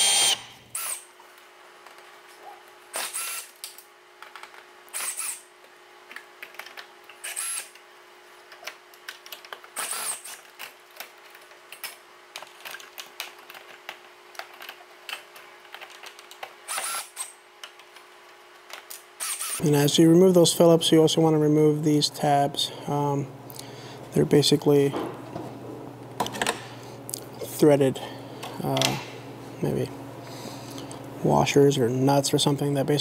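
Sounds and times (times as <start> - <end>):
cordless drill whirring: 0.0 - 1.1, 2.9 - 3.6, 4.9 - 5.5, 7.2 - 7.7, 9.8 - 10.4, 16.7 - 17.3, 19.2 - 19.6.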